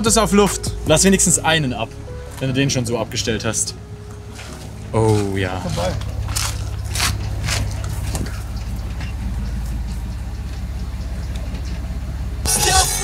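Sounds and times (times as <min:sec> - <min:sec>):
car stereo music: 0:00.0 - 0:08.8, 0:12.4 - 0:13.0
car engine idling: 0:00.0 - 0:13.0.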